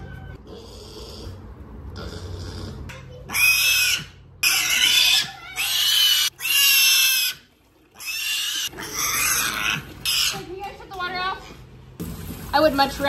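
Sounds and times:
piglet squealing: 0.0 - 1.4, 3.2 - 10.5.

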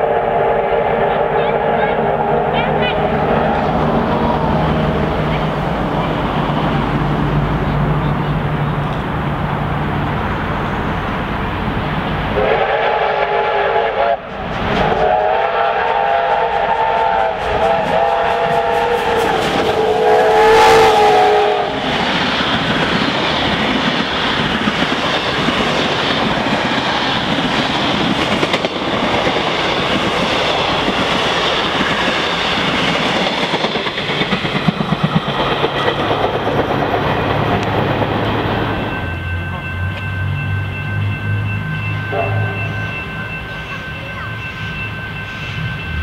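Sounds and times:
steam locomotive whistle: 0.0 - 5.0, 12.3 - 22.0, 41.3 - 46.0
train rushing past: 0.0 - 46.0.

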